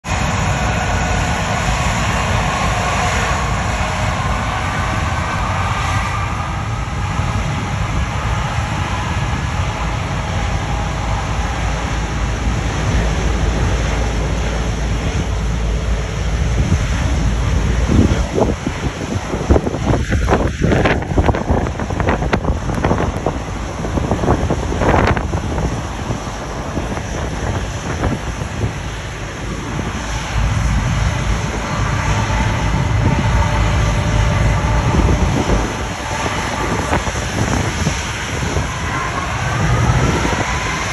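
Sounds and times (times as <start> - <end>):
jet blast buffeting microphone: 0.0 - 40.9
jet engines rumbling with whine: 0.0 - 40.9.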